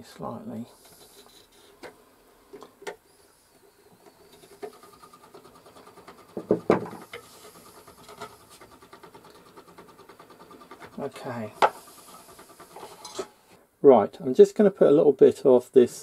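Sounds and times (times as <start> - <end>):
faint fast rattle: 4.0 - 13.4.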